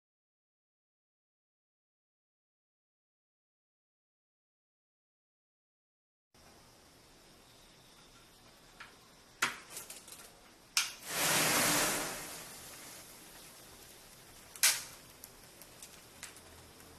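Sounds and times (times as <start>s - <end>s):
match heads flaring with a hiss: 10.8s - 16.9s
matches snapping: 14.5s - 16.9s.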